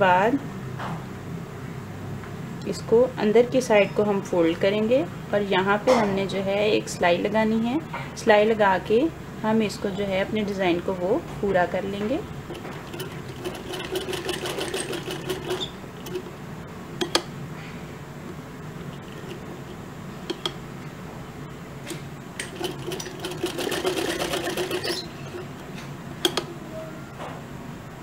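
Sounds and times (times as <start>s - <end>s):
sewing machine stitching: 12.4s - 16.3s, 22.4s - 25.6s.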